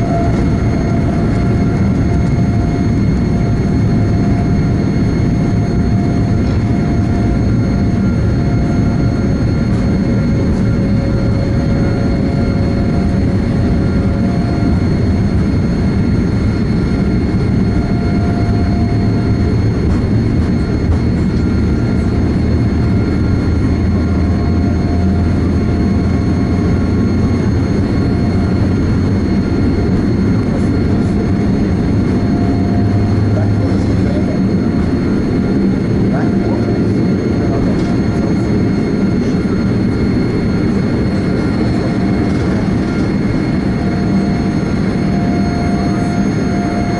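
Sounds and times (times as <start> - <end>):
faint jet engine whine: 0.0 - 46.9
jet engines rumbling: 0.0 - 46.9.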